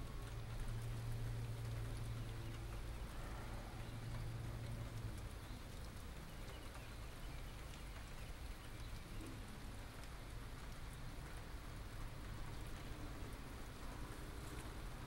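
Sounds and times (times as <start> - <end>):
drops ticking near microphone: 0.0 - 15.0
light rain falling: 0.0 - 15.0.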